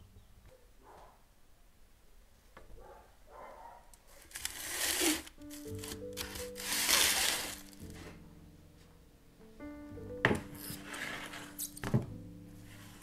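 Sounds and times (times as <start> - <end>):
soft background music: 4.4 - 13.0
scraping and rustling at oven: 10.7 - 11.6.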